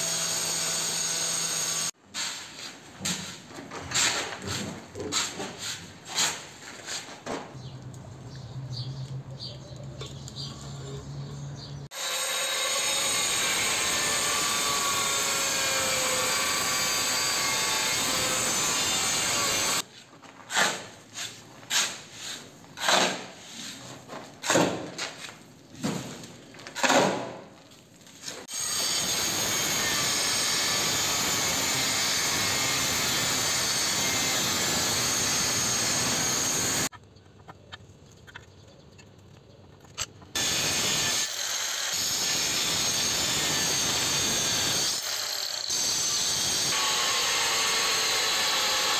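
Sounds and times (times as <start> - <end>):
angle grinder cutting tile: 0.0 - 2.0, 11.9 - 19.8, 28.4 - 36.9, 40.4 - 48.9
shovel scraping cement mix: 2.1 - 7.3, 19.8 - 27.4.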